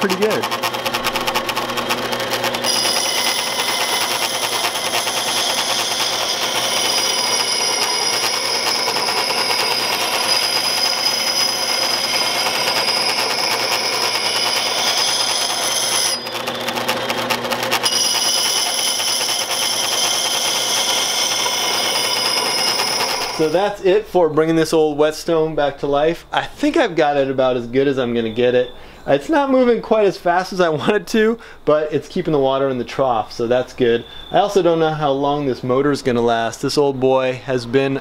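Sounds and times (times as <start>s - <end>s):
blade scraping on grindstone: 0.0s - 23.6s
motor rattling: 0.0s - 23.6s.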